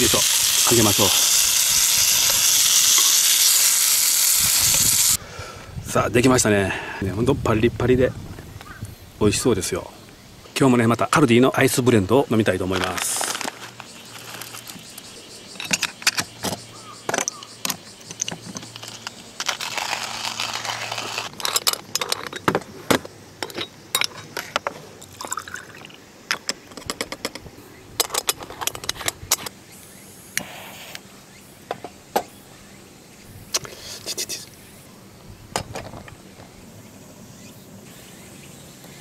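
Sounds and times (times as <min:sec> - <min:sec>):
metal pot parts clinking: 0:15.5 - 0:19.6, 0:21.3 - 0:22.6, 0:23.4 - 0:25.5.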